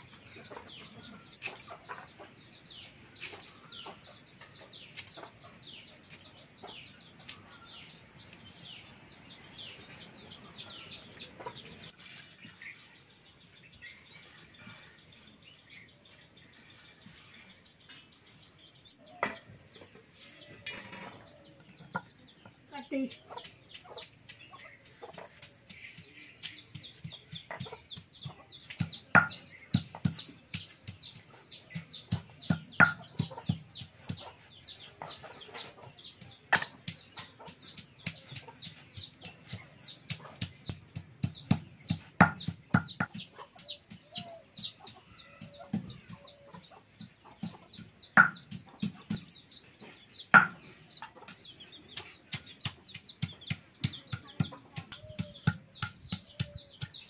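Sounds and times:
chickens clucking: 0:00.0 - 0:57.0
knife chopping beans: 0:23.0 - 0:50.7, 0:51.3 - 0:57.0
stone crushing garlic on board: 0:23.1 - 0:49.4, 0:51.3 - 0:57.0.

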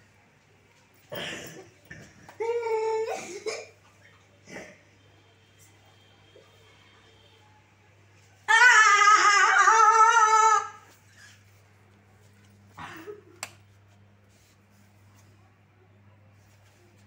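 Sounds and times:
high-pitched wavering cry: 0:08.5 - 0:10.8.

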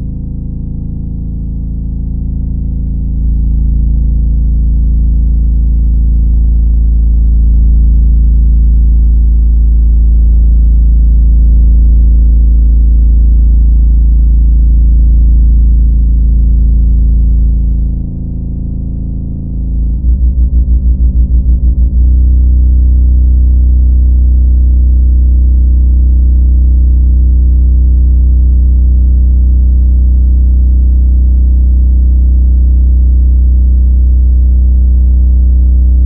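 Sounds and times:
deep electronic drone: 0:00.0 - 0:36.0.

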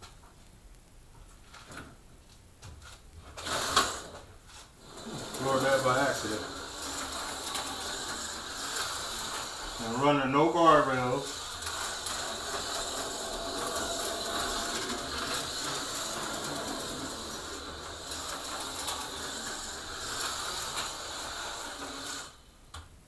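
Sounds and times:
slot car motor whirring: 0:03.4 - 0:04.2, 0:04.8 - 0:22.4.

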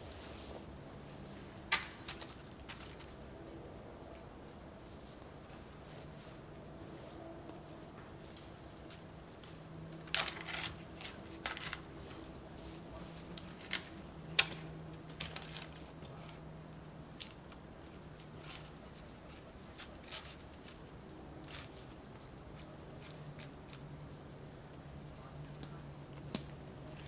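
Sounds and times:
dry branch dragged over forest floor: 0:10.0 - 0:13.9.

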